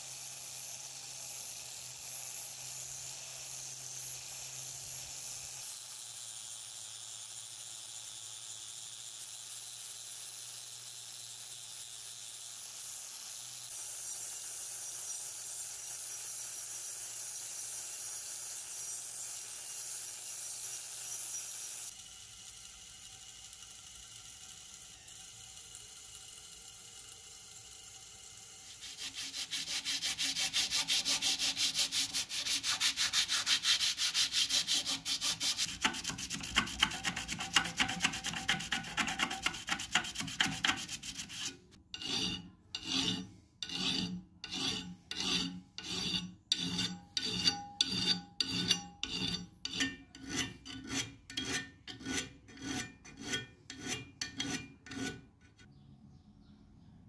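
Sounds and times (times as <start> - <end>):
rotary tool whirring: 0.4 - 46.2
sandpaper scrubbing on metal: 28.6 - 55.7.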